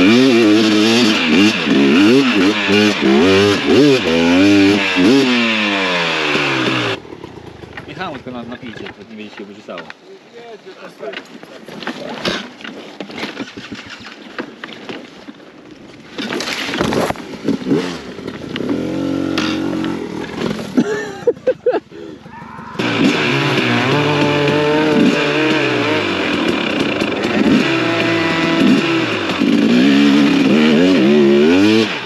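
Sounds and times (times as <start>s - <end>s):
motorcycle engine revving: 0.0s - 9.1s, 16.5s - 21.0s, 22.2s - 32.0s
motorcycle engine running: 0.0s - 9.1s, 16.8s - 21.4s, 22.2s - 32.0s
branches brushing against bike: 7.2s - 21.0s.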